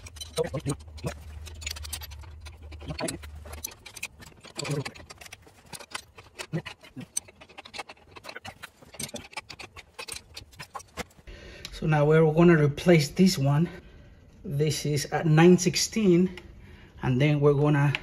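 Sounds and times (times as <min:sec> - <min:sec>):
spanners clicking on metal bolts: 0:00.0 - 0:11.2.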